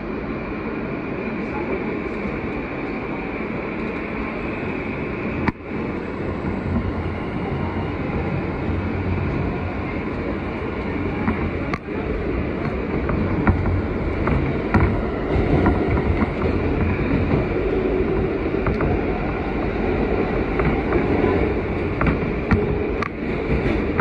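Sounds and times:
subway train rumbling on track: 0.0 - 24.0.

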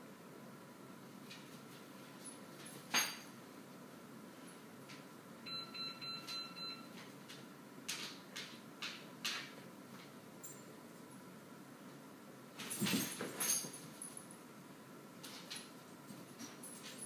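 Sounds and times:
short electronic beeps: 5.5 - 6.9.

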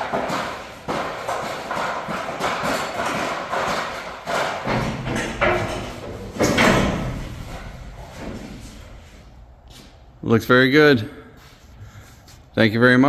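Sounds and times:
metal garage door knocking: 0.0 - 8.7.

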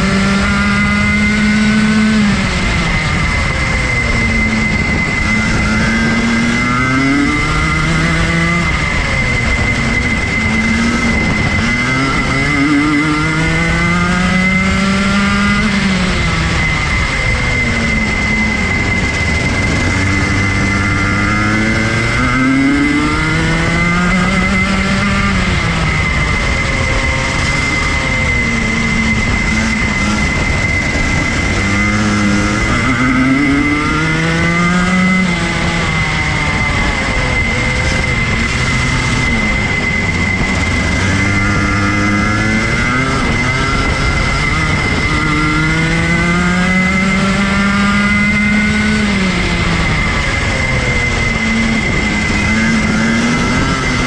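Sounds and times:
kart engine revving: 0.0 - 54.0
steady high whine: 0.0 - 54.0.

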